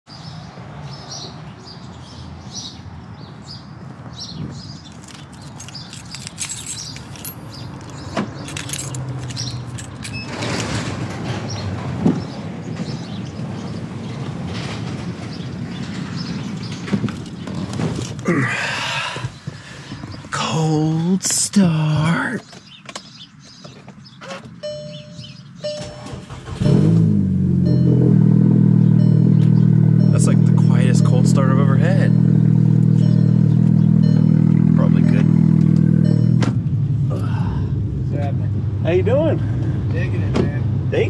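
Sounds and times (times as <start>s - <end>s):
vehicle low hum: 24.5s - 41.0s.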